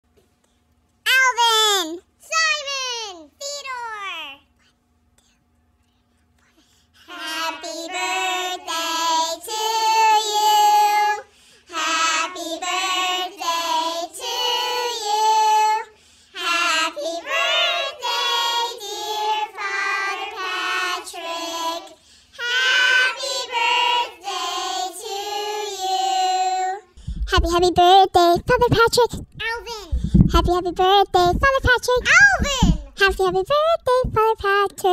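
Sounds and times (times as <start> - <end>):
children singing in unison: 22.4 - 26.7.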